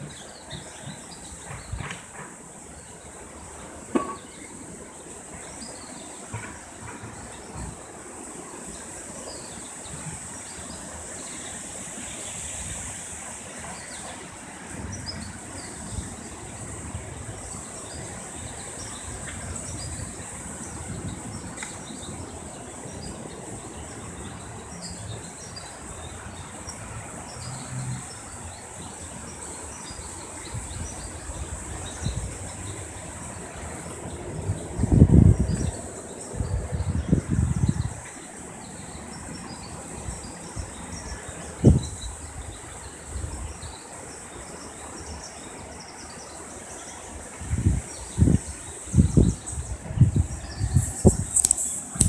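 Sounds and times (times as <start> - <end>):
short insect chirps: 50.4 - 52.0.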